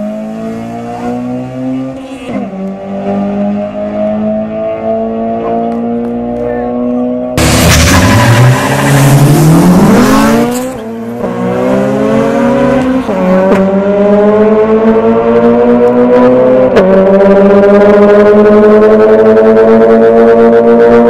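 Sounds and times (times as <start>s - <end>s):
car engine revving through gears: 0.0s - 21.0s.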